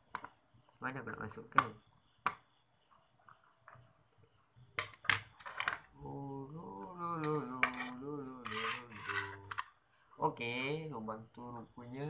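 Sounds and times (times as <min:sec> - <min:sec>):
faint cricket chirps: 0:00.0 - 0:12.0
man humming a wavering tune: 0:06.0 - 0:09.6.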